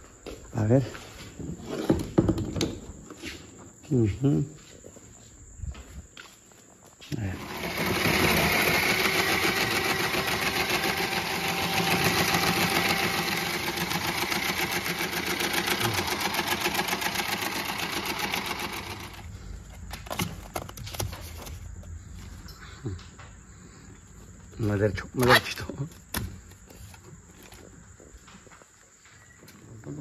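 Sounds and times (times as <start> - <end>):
ice-shaving machine whirring: 7.2 - 19.3.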